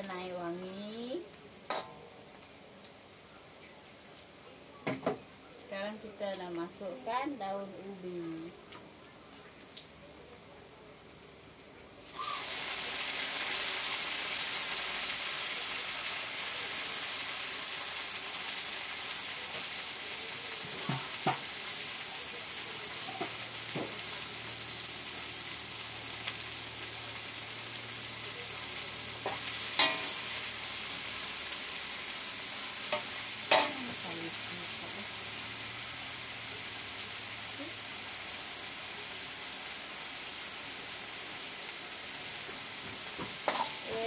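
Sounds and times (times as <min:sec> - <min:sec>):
leaves sizzling in hot oil: 0:00.0 - 0:10.2, 0:10.9 - 0:44.0
utensil knocking against wok: 0:29.2 - 0:30.2.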